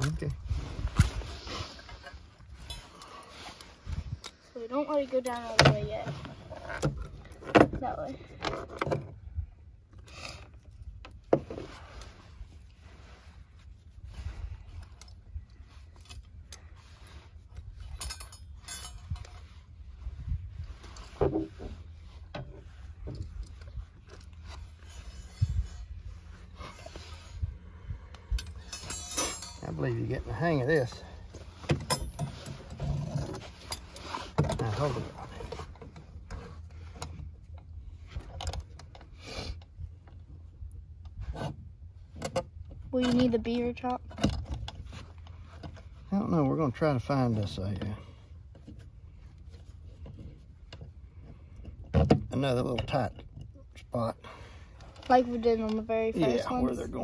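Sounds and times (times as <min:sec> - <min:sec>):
metal trap and chain rattling: 0:17.8 - 0:19.5, 0:28.2 - 0:31.1, 0:31.8 - 0:34.1
metal trap clicking and clinking: 0:28.4 - 0:29.8.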